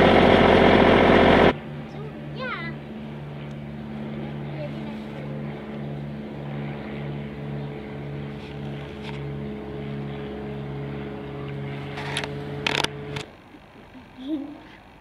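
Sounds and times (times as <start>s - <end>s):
small tractor engine idling: 0.0s - 2.0s.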